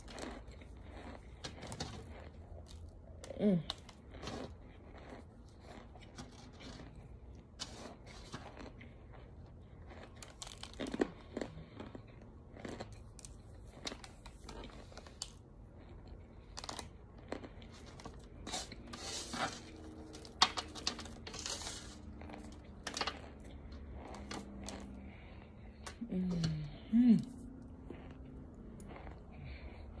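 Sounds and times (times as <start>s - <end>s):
cornstarch crunching: 0.0s - 2.9s, 3.7s - 9.2s, 16.5s - 23.3s.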